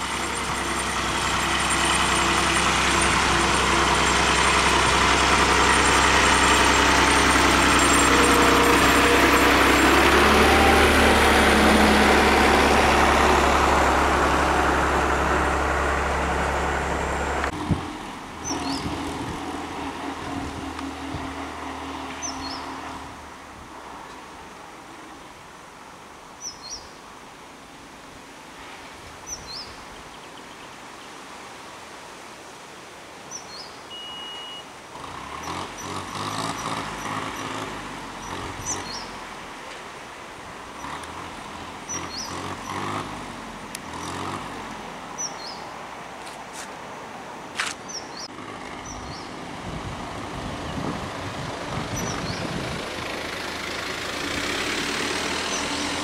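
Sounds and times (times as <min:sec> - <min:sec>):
tractor engine running: 0:00.0 - 0:21.8, 0:47.6 - 0:56.0
bird chirping: 0:45.2 - 0:45.7, 0:47.8 - 0:49.4.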